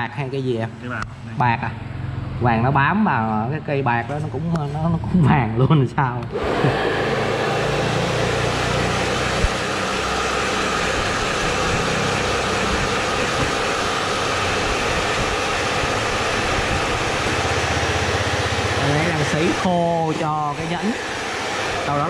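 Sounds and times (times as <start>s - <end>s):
hair dryer blowing: 6.3s - 22.0s.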